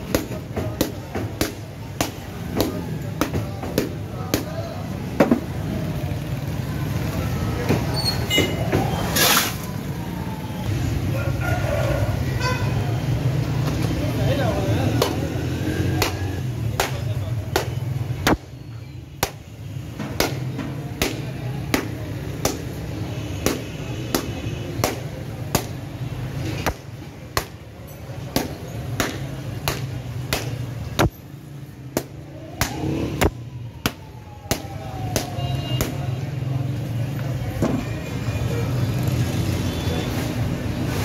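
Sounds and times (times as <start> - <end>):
low traffic hum: 0.0 - 41.0.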